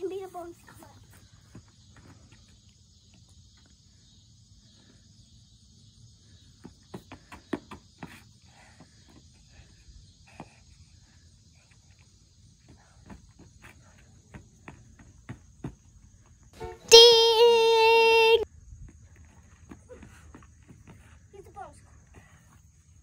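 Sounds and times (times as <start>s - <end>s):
high insect drone: 0.8s - 19.0s.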